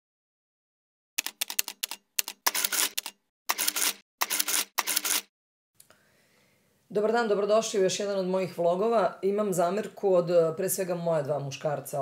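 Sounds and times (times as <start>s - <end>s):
camera shutter clicks: 2.5s - 5.3s.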